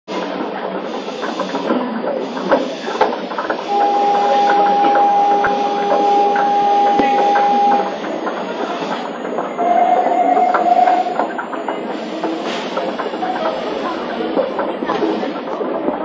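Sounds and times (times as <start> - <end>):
murmuring voices: 1.6 - 16.0
departure buzzer tone: 3.7 - 8.2, 9.6 - 11.4.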